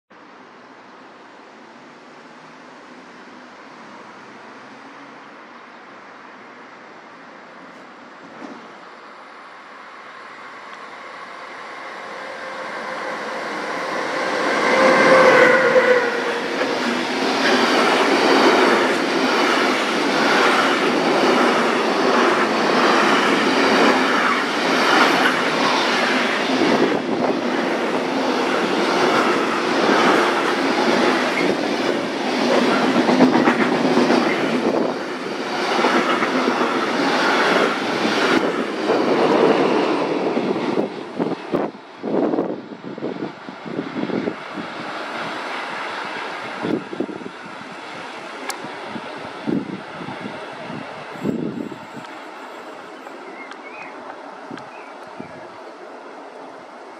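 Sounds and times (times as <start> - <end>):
locomotive passing: 8.2 - 56.9.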